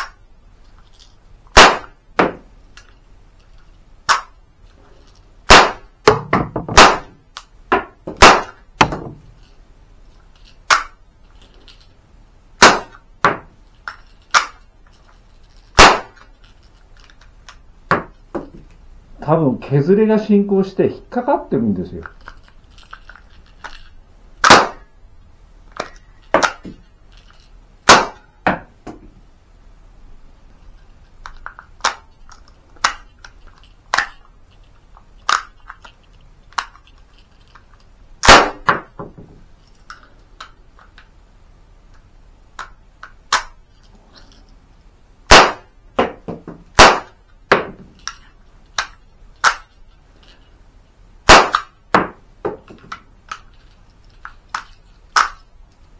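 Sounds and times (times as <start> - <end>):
cap gun cracks: 1.5 - 2.0, 4.0 - 4.4, 5.5 - 5.9, 6.8 - 7.5, 8.2 - 8.6, 10.6 - 11.0, 12.6 - 13.0, 13.9 - 14.6, 15.8 - 16.3, 24.4 - 24.8, 31.5 - 32.1, 32.8 - 33.1, 38.2 - 38.8, 42.6 - 43.6, 45.3 - 45.7, 46.8 - 47.2, 48.8 - 49.7, 51.3 - 51.8, 54.5 - 55.4.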